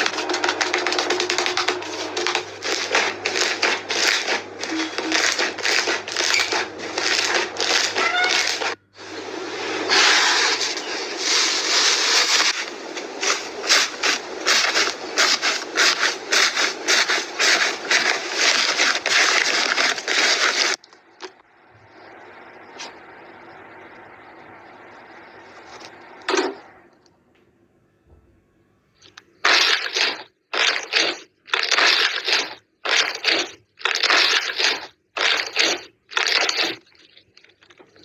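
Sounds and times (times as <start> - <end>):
foam-bead slime crunching: 0.0 - 8.8, 13.2 - 20.8, 29.4 - 38.0
hands stretching wet slime: 0.0 - 8.8, 29.0 - 38.0.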